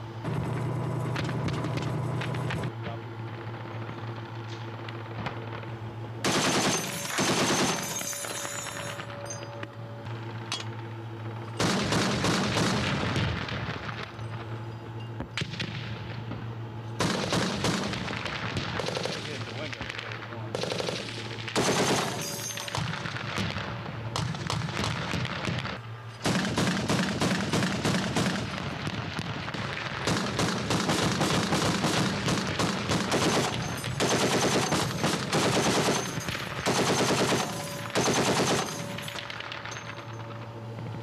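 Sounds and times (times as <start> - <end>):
steady low hum: 0.0 - 41.0
automatic gunfire: 6.2 - 8.7, 11.6 - 13.6, 17.0 - 23.5, 24.2 - 28.8, 30.0 - 39.9.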